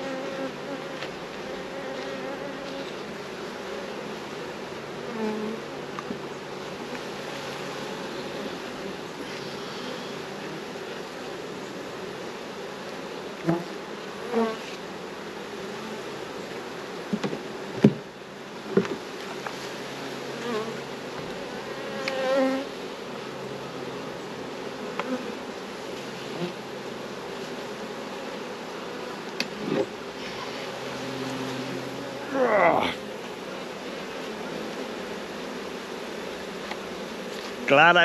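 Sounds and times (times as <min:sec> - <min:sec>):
bees buzzing: 0:00.0 - 0:38.0
bees flying past: 0:00.0 - 0:38.0.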